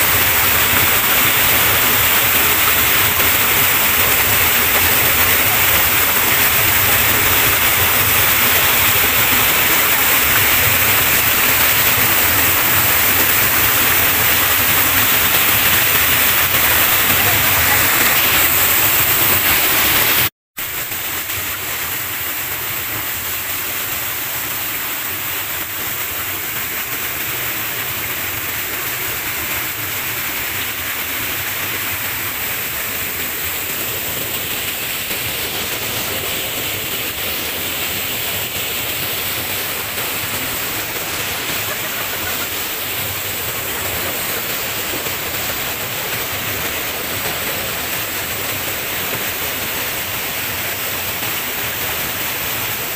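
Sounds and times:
waterfall rushing into pool: 0.0 - 52.9.

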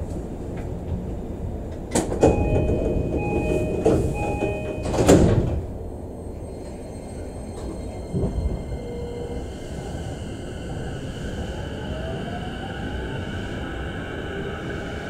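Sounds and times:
low hum of train car: 0.0 - 15.0
train doors shutting with thud: 0.5 - 5.9
short repeated chime: 2.2 - 5.2.

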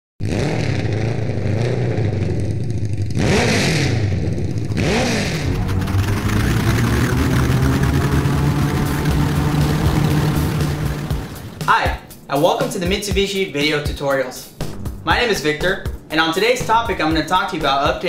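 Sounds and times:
steady low drone: 4.0 - 12.3.

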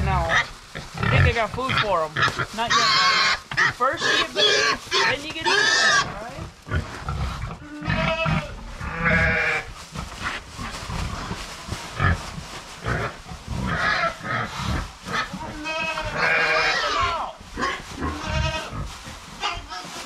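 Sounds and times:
pigs grunting: 0.0 - 20.0
goats bleating: 7.6 - 9.7, 15.2 - 17.4, 18.0 - 20.0.

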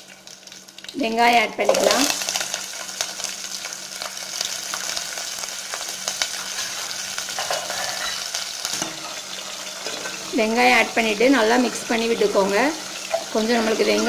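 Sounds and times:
oil crackling and popping: 0.0 - 10.3
onions sizzling in hot oil: 0.0 - 14.0.

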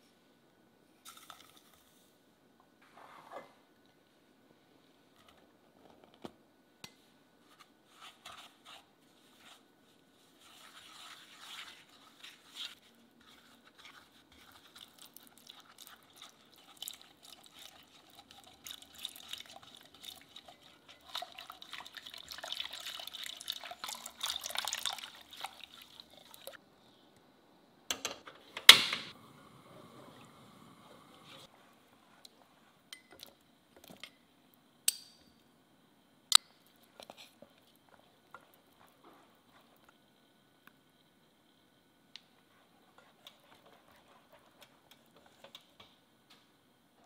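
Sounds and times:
wire whisk scraping in saucepan: 10.4 - 21.5
milk pouring: 14.6 - 26.6.

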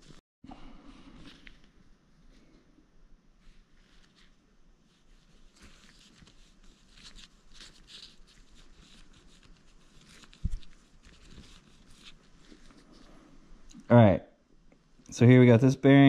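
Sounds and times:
soft rustling: 0.9 - 2.7, 3.4 - 13.5.

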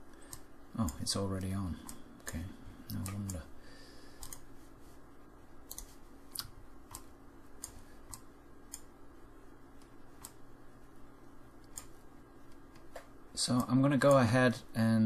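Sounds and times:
faint low hum: 0.0 - 15.0
computer mouse clicking: 0.1 - 3.5, 4.1 - 4.5, 5.6 - 9.0, 9.7 - 10.5, 11.6 - 14.3.

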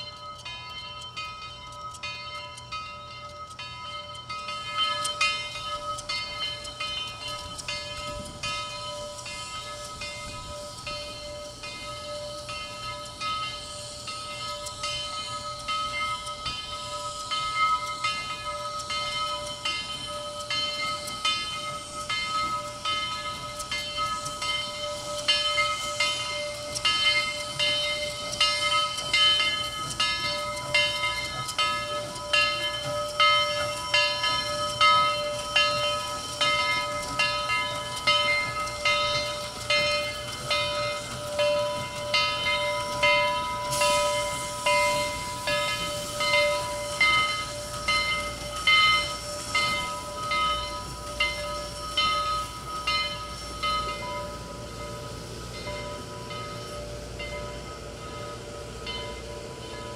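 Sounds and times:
steady whine: 0.0 - 59.9
steam hissing: 0.0 - 59.9
steam locomotive chuffing: 0.0 - 59.9.

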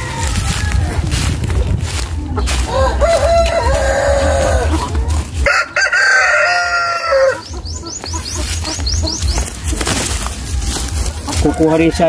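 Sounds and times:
rooster crowing: 0.0 - 1.1, 2.6 - 7.4, 11.3 - 12.0.

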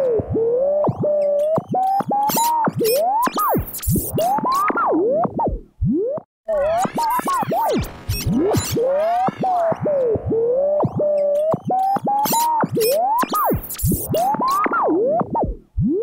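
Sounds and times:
radio tuning squealing whistles: 0.8 - 4.8, 6.5 - 9.8, 10.6 - 14.8.

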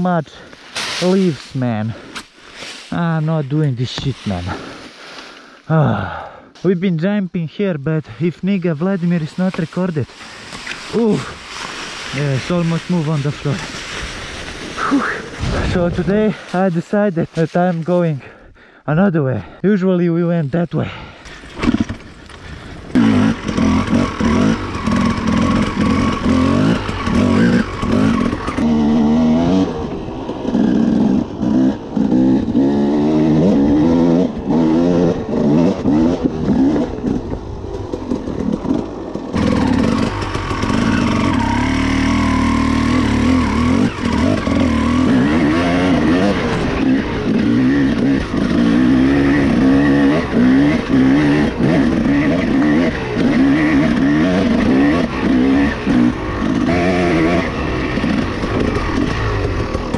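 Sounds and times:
dirt bike engine revving: 9.1 - 16.8, 21.3 - 59.9.

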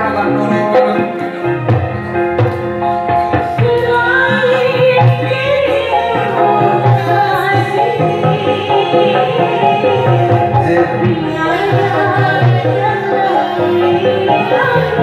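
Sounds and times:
backing music with drum beat: 0.0 - 15.0
woman singing into microphone: 3.2 - 15.0.

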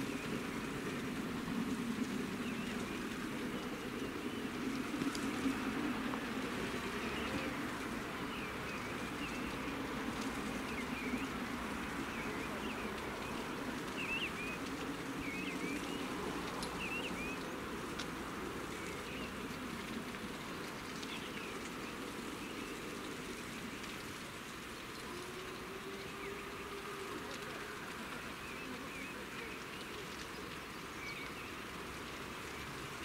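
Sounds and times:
birds chirping: 0.0 - 24.0, 24.6 - 31.8
steady rushing noise: 0.0 - 24.9.

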